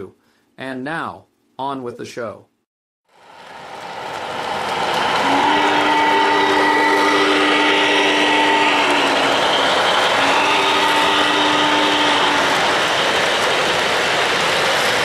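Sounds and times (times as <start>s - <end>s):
model train running on track: 3.1s - 15.0s
chime steam whistle blasts: 5.2s - 13.1s.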